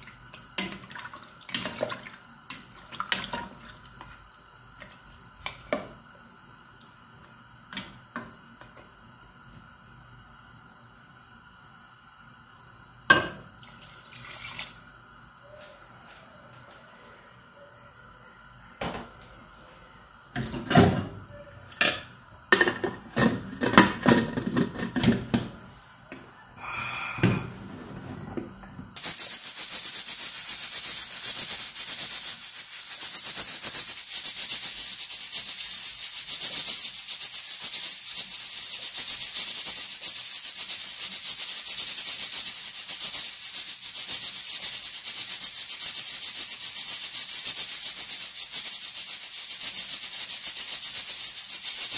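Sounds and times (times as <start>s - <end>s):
loud steady hiss: 26.6s - 27.6s, 29.0s - 51.9s.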